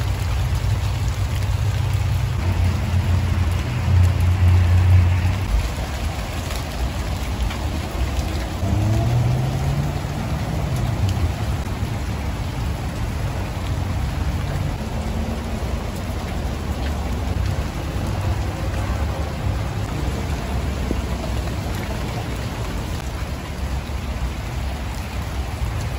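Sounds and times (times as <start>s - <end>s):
rain falling on leaves: 0.0s - 25.9s
low rumble: 0.9s - 6.4s.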